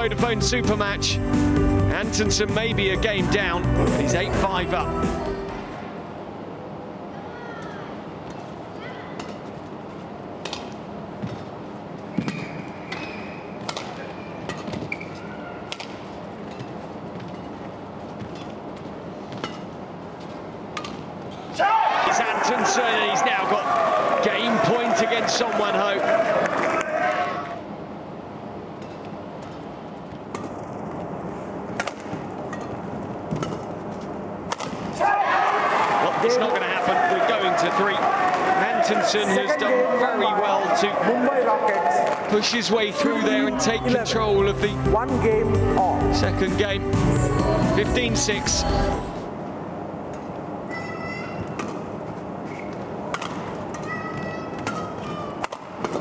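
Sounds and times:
murmur of arena crowd: 0.0s - 17.6s, 19.3s - 31.0s, 34.8s - 56.0s
racket striking shuttlecock: 10.4s - 10.8s, 12.2s - 15.0s, 15.7s - 16.8s, 31.7s - 33.7s, 34.5s - 35.0s, 53.1s - 53.9s
shoes squeaking on court: 11.2s - 21.5s, 50.7s - 53.0s
crowd murmur: 35.0s - 49.3s.

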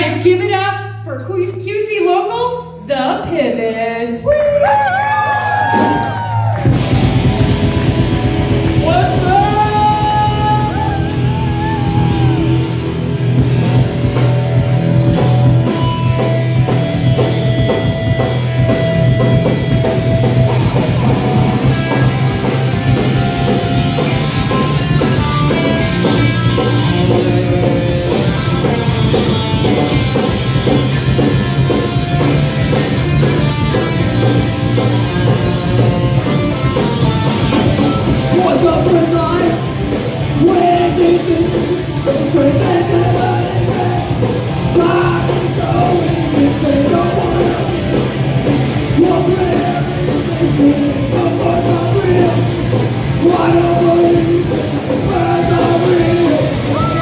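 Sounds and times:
drum kit: 4.6s - 57.0s
distorted electric guitars: 5.0s - 57.0s
person singing: 8.8s - 12.8s, 40.3s - 48.0s, 48.9s - 57.0s.

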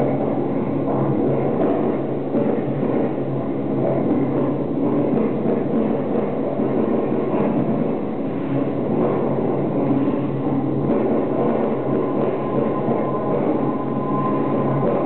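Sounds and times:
rumbling drone: 0.0s - 15.0s
low held tones: 9.5s - 15.0s.

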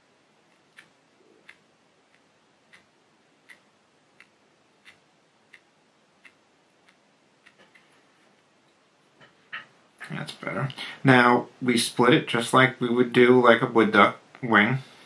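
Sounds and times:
faint regular ticking: 0.0s - 10.1s.

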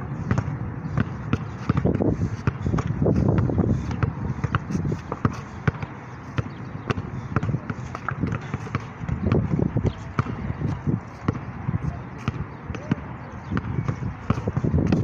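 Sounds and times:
basketball bouncing on asphalt: 0.1s - 15.0s.

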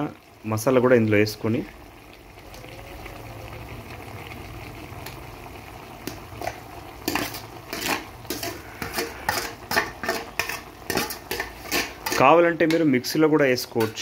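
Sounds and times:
metal spoon scraping metal bowl: 7.0s - 12.8s.

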